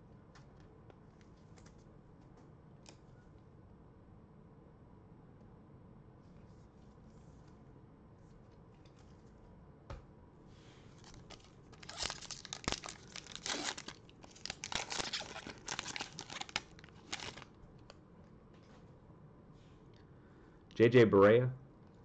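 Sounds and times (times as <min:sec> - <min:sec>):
foil wrapper tearing and crinkling: 0:11.0 - 0:17.5.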